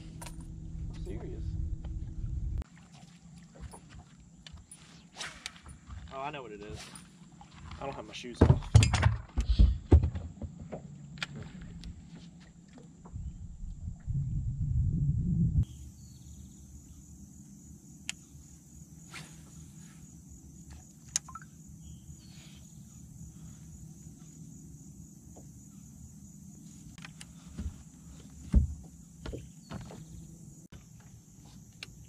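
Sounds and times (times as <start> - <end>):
low hum: 0.0 - 6.1, 10.8 - 30.8
high insect drone: 15.6 - 32.0
heavy thump on boat deck: 28.4 - 30.1.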